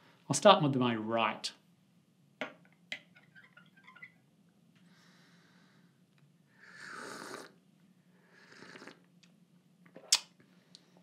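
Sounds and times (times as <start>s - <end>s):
person slurping espresso: 6.6s - 7.6s, 8.4s - 9.1s.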